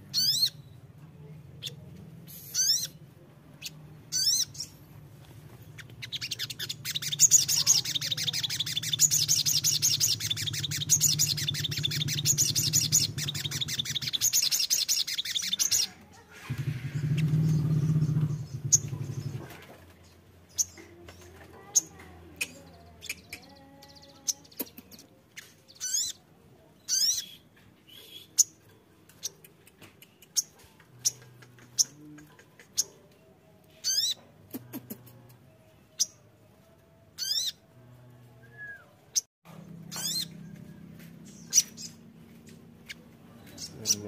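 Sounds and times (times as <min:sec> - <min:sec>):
bird chirping: 0:00.0 - 0:00.9, 0:01.5 - 0:04.9, 0:05.6 - 0:26.2, 0:26.8 - 0:34.3, 0:38.6 - 0:44.0
bird twittering trills: 0:00.1 - 0:00.8, 0:01.6 - 0:03.0, 0:03.6 - 0:04.8, 0:05.7 - 0:15.9, 0:16.5 - 0:19.5, 0:39.2 - 0:44.0.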